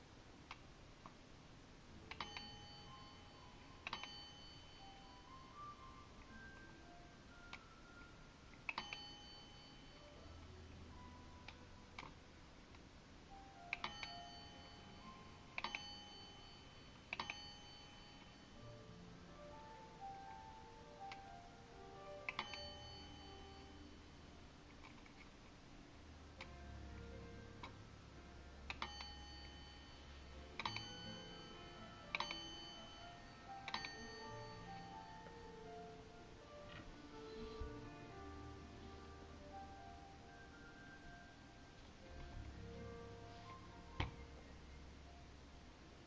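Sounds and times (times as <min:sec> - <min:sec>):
table clock chiming: 0:02.1 - 0:06.5, 0:07.5 - 0:10.4, 0:13.7 - 0:18.6, 0:22.2 - 0:24.0, 0:28.7 - 0:35.4
faint clock ticking: 0:27.6 - 0:36.0.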